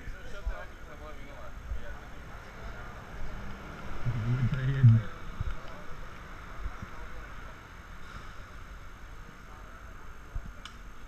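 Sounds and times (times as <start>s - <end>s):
faint background murmur: 0.0s - 11.0s
wind rumbling on microphone: 3.2s - 5.7s.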